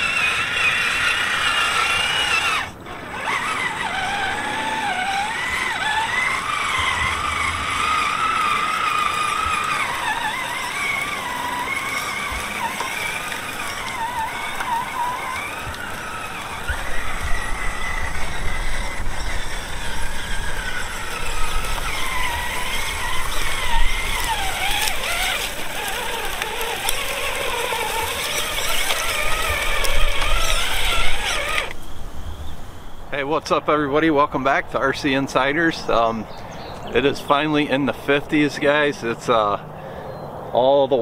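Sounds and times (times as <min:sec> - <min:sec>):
toy truck electric motor whining: 0:00.0 - 0:32.0.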